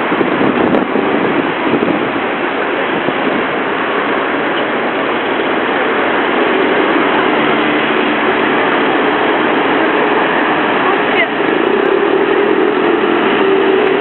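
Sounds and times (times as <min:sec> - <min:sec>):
road traffic: 0:00.0 - 0:14.0
crowd noise: 0:04.2 - 0:14.0.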